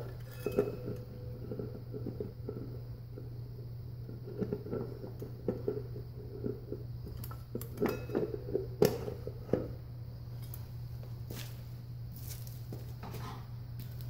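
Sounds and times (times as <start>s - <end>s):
metal clinks and knocks: 0.0s - 3.2s, 4.3s - 9.8s.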